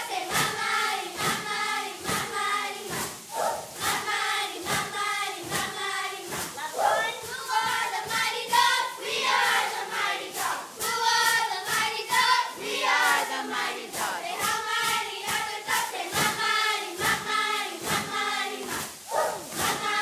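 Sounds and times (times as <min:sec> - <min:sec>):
girls chanting a cheer: 0:00.0 - 0:20.0
rhythmic claps and stomps: 0:00.0 - 0:20.0.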